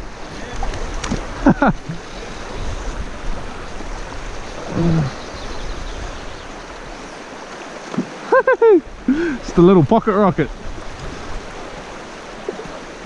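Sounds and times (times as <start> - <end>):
river current rushing: 0.0 - 13.0
person vocal sound: 4.7 - 5.2.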